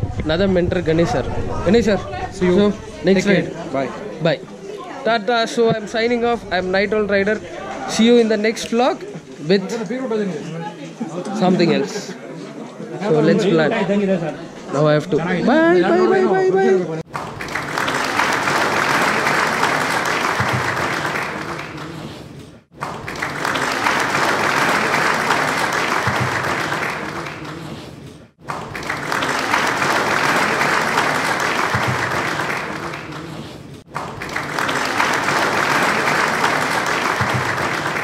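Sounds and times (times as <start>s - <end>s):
crowd clapping: 17.1s - 38.0s.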